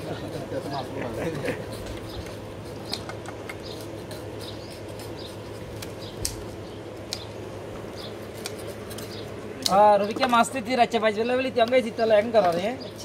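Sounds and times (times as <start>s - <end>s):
knives and scissors on fish: 1.3s - 7.3s, 8.3s - 9.8s.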